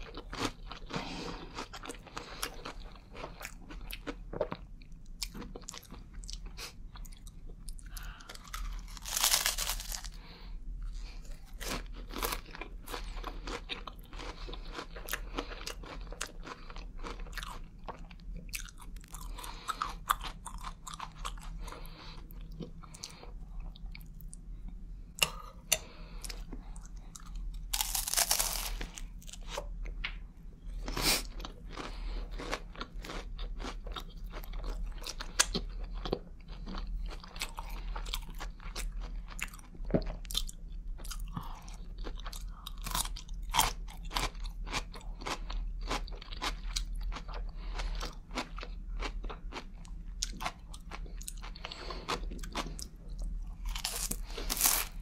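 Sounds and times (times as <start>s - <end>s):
low steady hum: 0.0s - 55.0s
crunching bites: 8.4s - 10.2s, 27.7s - 29.4s.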